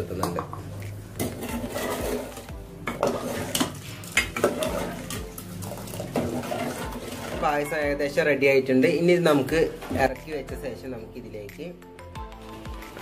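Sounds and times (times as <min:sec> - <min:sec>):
metal ladle scraping a pot: 0:01.1 - 0:07.7.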